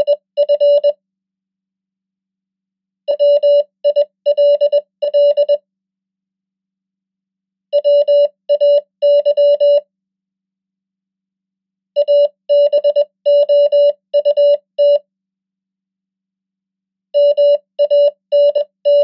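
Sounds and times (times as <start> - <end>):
morse code beeps: 0.0 - 1.0, 3.1 - 5.6, 7.8 - 9.8, 12.0 - 15.0, 17.2 - 19.0.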